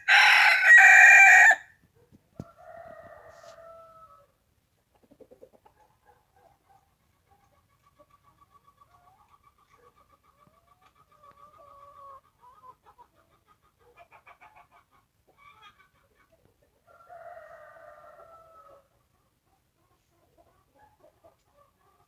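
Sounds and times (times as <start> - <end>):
rooster crowing: 0.0 - 1.7
chickens clucking: 2.1 - 22.0.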